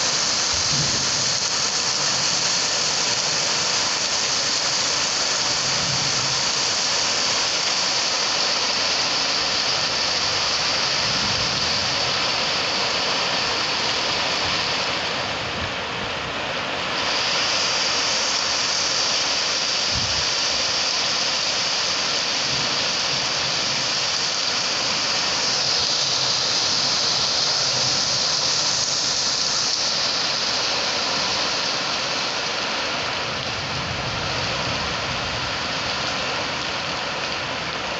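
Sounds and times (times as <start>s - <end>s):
heavy rain on roofs: 0.0s - 37.9s
rain pouring off metal awning: 0.0s - 37.9s
wind: 0.0s - 37.9s.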